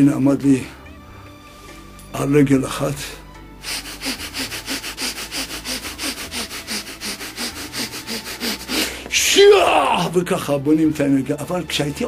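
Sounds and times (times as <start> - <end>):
man breathing rapidly through nose: 0.8 - 2.0, 3.5 - 9.2.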